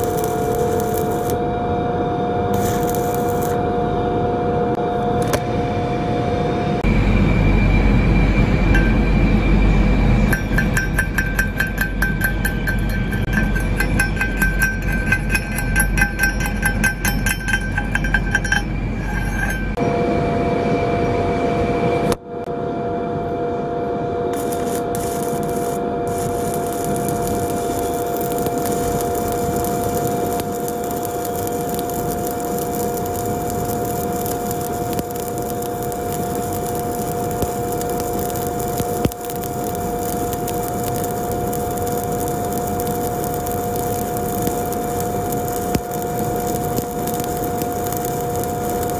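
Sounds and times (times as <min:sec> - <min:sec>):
welding arc crackling hiss: 0:00.0 - 0:01.4, 0:02.5 - 0:03.6, 0:10.3 - 0:19.2, 0:24.3 - 0:48.9
chipping hammer striking steel: 0:10.3 - 0:18.6.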